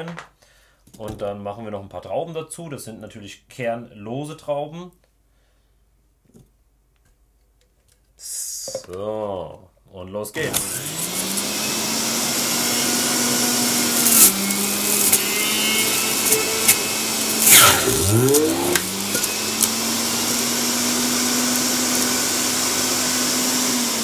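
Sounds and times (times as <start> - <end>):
juicer grinding rush: 10.4 - 24.0
juicer motor humming: 10.4 - 24.0.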